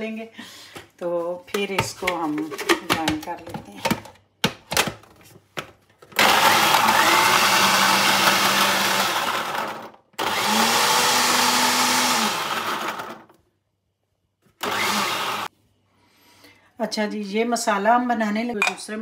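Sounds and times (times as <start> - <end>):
electric blender grinding: 6.2 - 13.4, 14.6 - 15.5.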